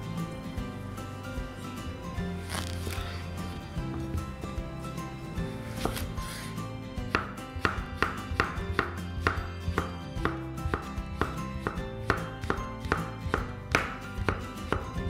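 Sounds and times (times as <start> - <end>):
background music: 0.0 - 15.0
knife striking cutting board: 5.8 - 6.1, 7.1 - 15.0.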